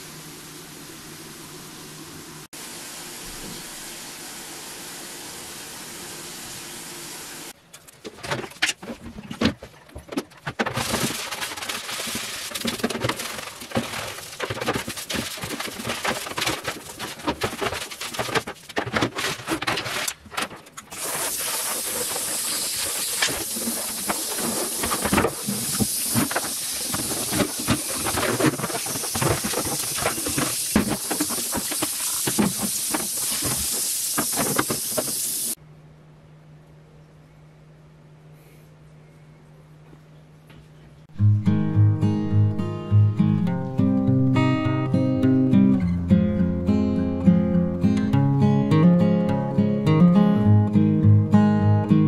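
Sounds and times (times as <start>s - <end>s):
scrubbing plastic box: 8.0s - 35.6s
broom sweeping tiled floor: 10.5s - 35.6s
shower head spraying water: 20.9s - 35.6s.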